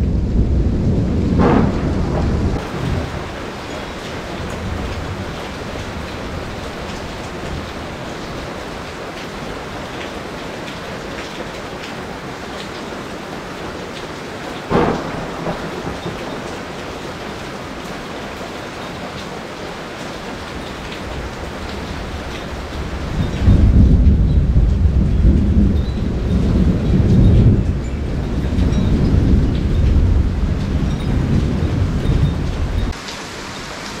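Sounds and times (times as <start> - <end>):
thunder clap: 0.0 - 8.0, 14.6 - 17.7, 21.0 - 33.0
heavy rain falling: 0.0 - 34.0
single raindrops striking close: 13.9 - 34.0.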